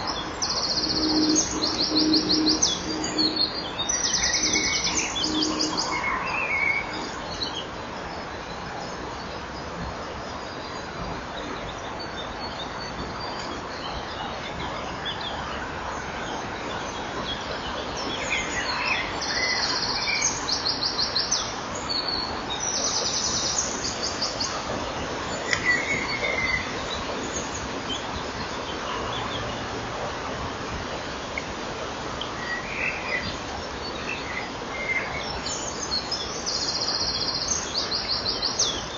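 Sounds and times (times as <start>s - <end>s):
high-pitched bird calls: 0.0s - 7.0s
steady hiss: 0.0s - 38.9s.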